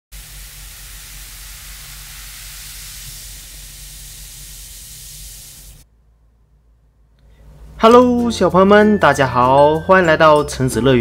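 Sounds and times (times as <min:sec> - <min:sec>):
bath bomb fizzing: 0:00.1 - 0:05.8.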